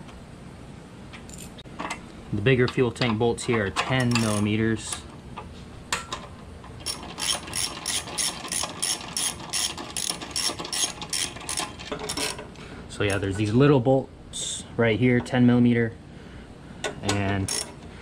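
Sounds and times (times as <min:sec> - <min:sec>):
socket ratchet clicking: 0:06.8 - 0:12.4, 0:17.4 - 0:17.8.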